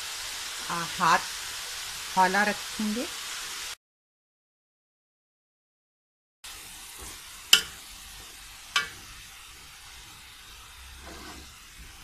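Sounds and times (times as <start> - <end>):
faint sizzle: 0.0 - 3.8, 6.4 - 12.0
metal spoon stirring in pot: 7.0 - 10.2, 10.8 - 12.0
spoon clanking against pot: 7.5 - 7.8, 8.7 - 9.1.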